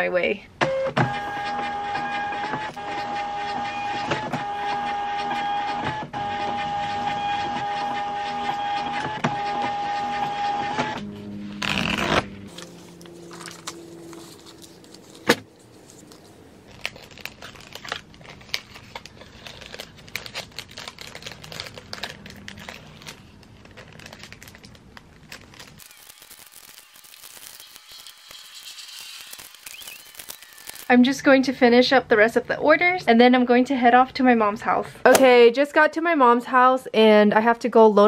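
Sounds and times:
printer running: 0.7 - 16.6, 25.8 - 30.9
packaging rustling: 11.6 - 30.9.

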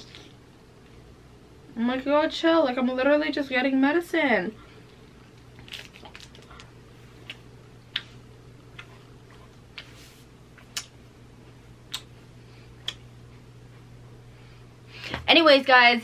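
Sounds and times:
low room hum: 0.0 - 16.0
person chewing with mouth clicks: 5.7 - 9.8, 10.6 - 11.0, 11.9 - 12.2, 12.8 - 13.1.

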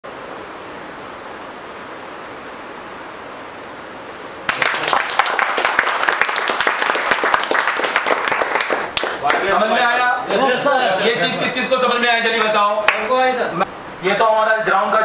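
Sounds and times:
steady hiss: 0.1 - 15.0
group of people clapping: 4.4 - 10.4, 12.4 - 13.2.

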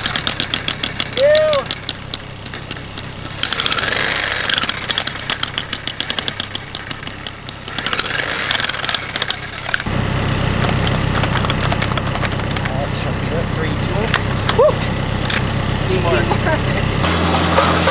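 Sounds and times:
jackhammer chiselling into rock: 0.0 - 9.9
low hum: 0.0 - 17.8.

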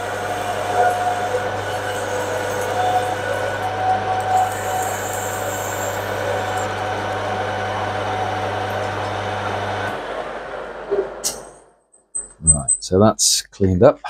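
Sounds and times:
lathe tool cutting metal: 0.0 - 10.8
spindle winding down: 0.0 - 10.9
lathe motor hum: 0.0 - 11.2.

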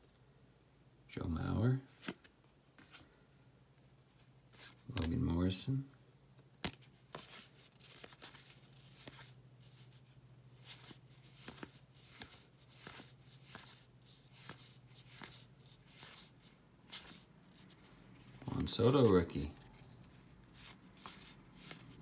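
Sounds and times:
cards swishing and clicking: 6.6 - 22.0.

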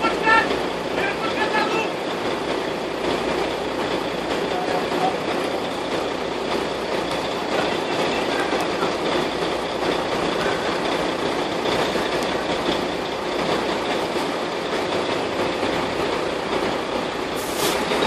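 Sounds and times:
car and truck engines idling: 0.0 - 18.0.

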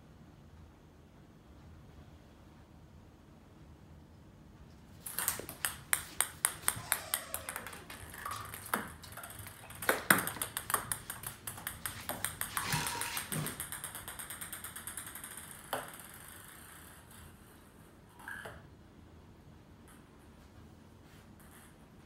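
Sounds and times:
ping pong ball bouncing on tile: 5.0 - 17.0.

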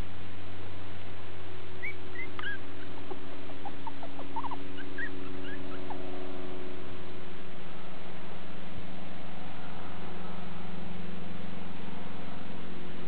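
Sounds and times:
low hum: 0.0 - 13.0
puppies squeaking: 1.8 - 6.0.

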